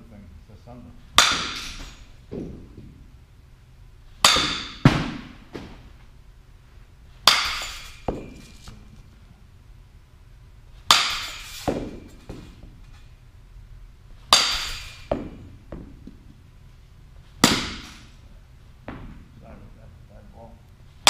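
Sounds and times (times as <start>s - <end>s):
bat cracking softball: 1.1s - 3.0s, 4.2s - 6.0s, 7.2s - 8.8s, 10.8s - 13.0s, 14.2s - 16.4s, 17.2s - 18.2s.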